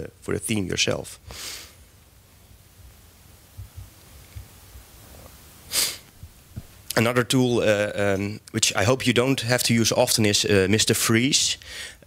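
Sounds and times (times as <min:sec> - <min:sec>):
sharp breath into microphone: 0:01.2 - 0:01.8, 0:05.7 - 0:06.1, 0:11.6 - 0:12.0
soft low thumps: 0:03.5 - 0:04.5, 0:06.1 - 0:06.8.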